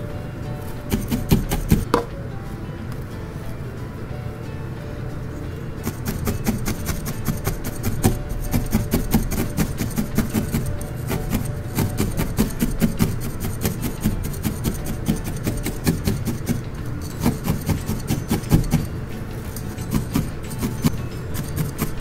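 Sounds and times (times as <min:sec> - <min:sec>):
felting needle scratchy pokes: 0:00.6 - 0:02.0, 0:05.8 - 0:22.0.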